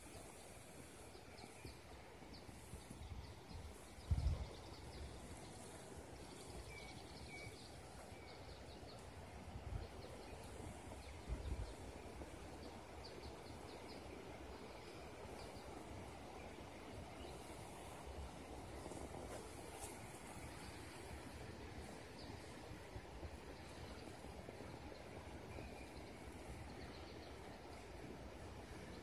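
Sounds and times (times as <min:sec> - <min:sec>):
wind thumps on microphone: 0:04.0 - 0:04.7.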